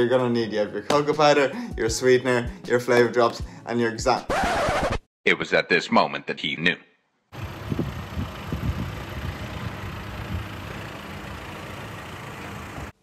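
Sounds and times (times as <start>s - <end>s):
low rumble of vehicle traffic: 7.3s - 13.0s.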